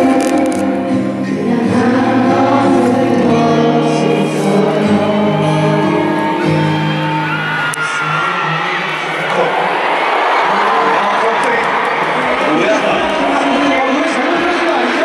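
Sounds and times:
male vocal group singing: 0:00.0 - 0:06.8
backing music over sound system: 0:00.0 - 0:09.4.

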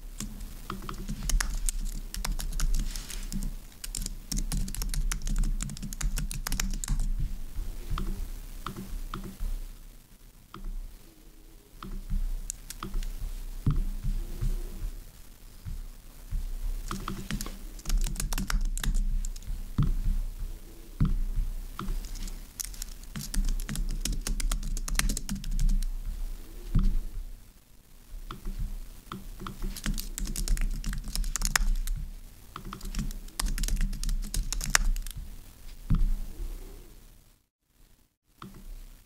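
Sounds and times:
computer keyboard typing: 0:00.2 - 0:07.1, 0:11.9 - 0:13.1, 0:16.8 - 0:19.5, 0:21.8 - 0:25.9, 0:29.1 - 0:32.0, 0:32.6 - 0:35.2.

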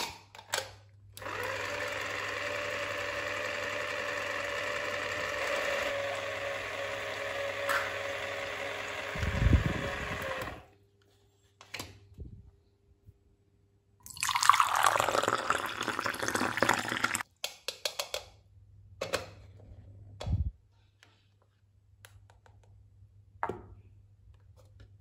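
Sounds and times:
juice pouring into plastic cup: 0:14.0 - 0:17.2.

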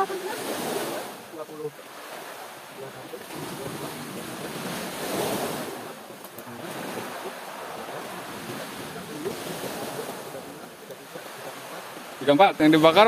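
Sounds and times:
sea surf washing ashore: 0:00.0 - 0:13.0.

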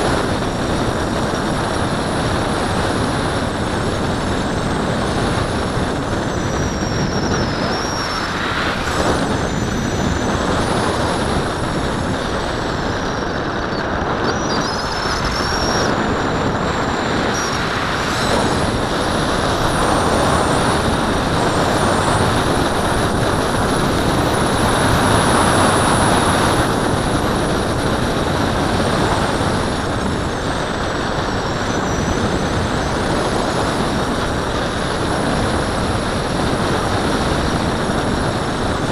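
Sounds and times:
wind roar over camera: 0:00.0 - 0:38.9
thin high whistles: 0:06.3 - 0:10.7, 0:13.6 - 0:20.8.

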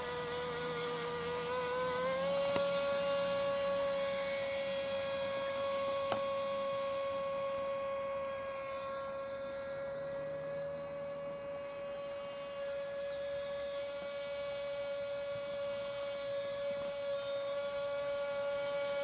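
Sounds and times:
electric motor whining: 0:00.0 - 0:19.0.

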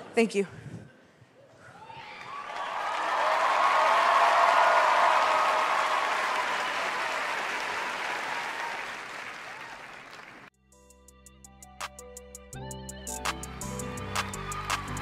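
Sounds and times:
theatre audience applauding: 0:02.0 - 0:10.5, 0:13.7 - 0:15.0.

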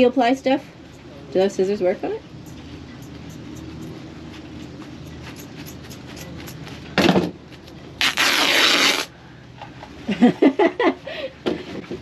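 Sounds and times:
scissors cutting fabric: 0:05.1 - 0:06.7.

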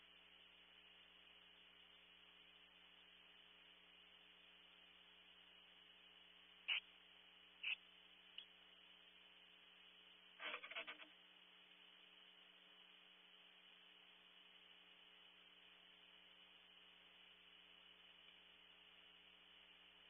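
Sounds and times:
faint electrical hum and hiss: 0:00.0 - 0:20.0
owl scratchy clicks: 0:06.7 - 0:06.9, 0:07.6 - 0:07.8, 0:10.4 - 0:11.1.

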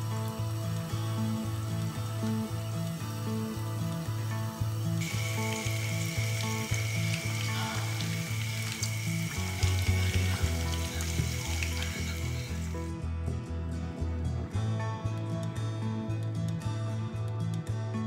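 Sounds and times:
hot oil sizzling: 0:00.0 - 0:12.9
background music with bass line: 0:00.0 - 0:18.0.

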